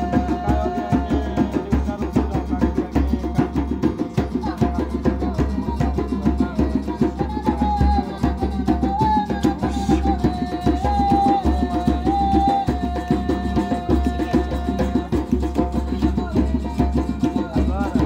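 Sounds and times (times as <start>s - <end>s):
djembe fast beat: 0.0s - 18.0s.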